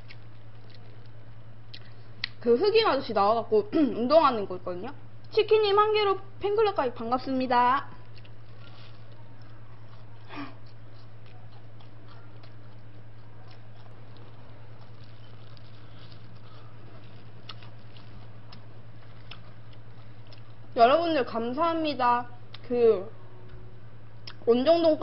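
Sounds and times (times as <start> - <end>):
person chewing food: 0.0 - 2.4, 8.0 - 20.7
low hum: 0.0 - 25.0.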